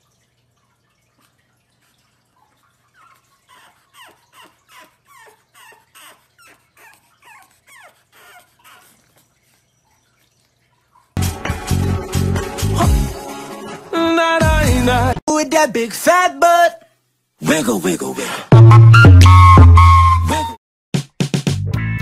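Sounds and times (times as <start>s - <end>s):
puppy crying: 2.9s - 10.0s
loud music: 11.2s - 15.2s, 18.5s - 22.0s.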